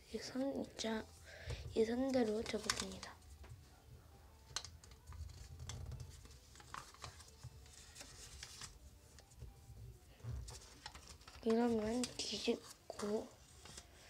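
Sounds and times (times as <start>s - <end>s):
paper rustling and crackling: 2.0s - 3.5s, 4.5s - 9.4s, 10.2s - 14.0s.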